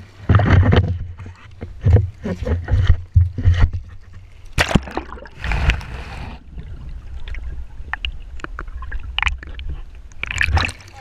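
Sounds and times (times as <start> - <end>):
seawater splashing: 0.0 - 11.0
small underwater clicks and crackles: 0.0 - 11.0
muffled underwater rumble: 5.0 - 11.0.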